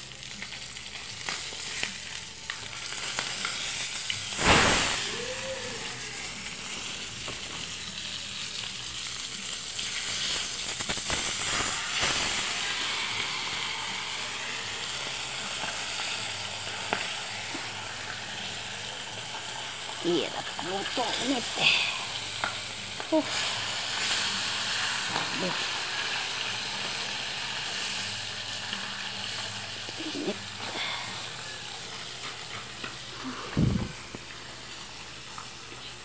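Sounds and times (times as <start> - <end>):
fish sizzling in hot oil: 0.0 - 36.0
loud sharp knock: 4.4 - 5.1.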